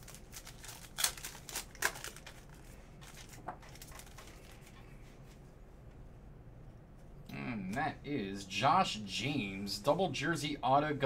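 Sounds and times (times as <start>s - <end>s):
wrapper crinkling and tearing: 0.0s - 4.8s.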